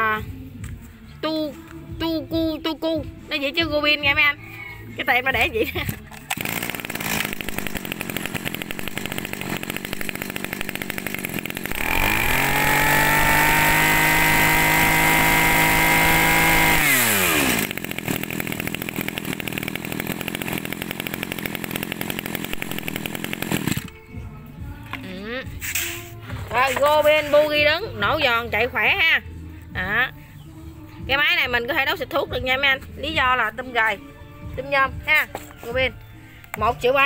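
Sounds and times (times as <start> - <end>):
brush cutter engine revving: 5.7 - 24.0.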